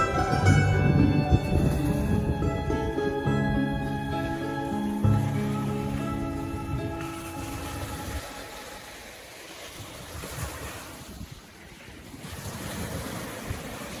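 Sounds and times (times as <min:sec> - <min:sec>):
wind on microphone: 0:00.0 - 0:14.0
small waves breaking on beach: 0:04.6 - 0:14.0.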